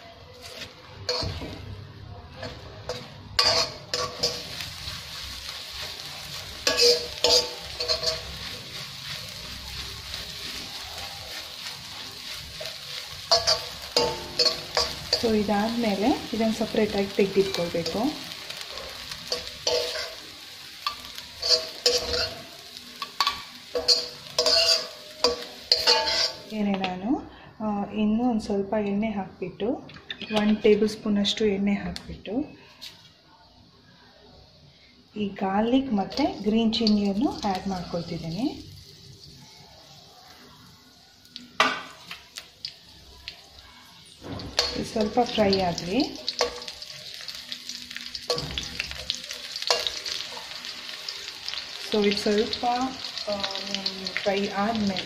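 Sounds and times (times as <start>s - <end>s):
metal spatula scraping a wok: 0.3s - 1.7s, 2.4s - 18.0s, 19.0s - 20.2s, 20.8s - 26.5s, 43.9s - 47.3s, 48.0s - 50.7s
eggs sizzling in hot oil: 0.5s - 27.4s, 34.7s - 55.0s.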